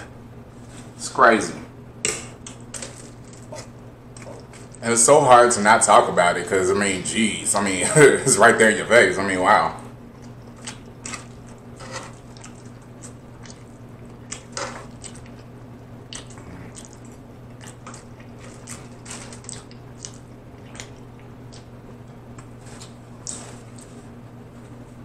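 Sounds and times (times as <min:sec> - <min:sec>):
steady low hum: 0:00.0 - 0:25.0
wet chewing and mouth clicks: 0:10.1 - 0:23.9.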